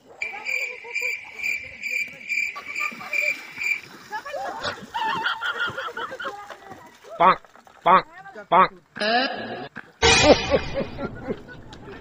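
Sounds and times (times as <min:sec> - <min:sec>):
voices: 0:00.0 - 0:09.3
cricket chirping: 0:00.1 - 0:04.0.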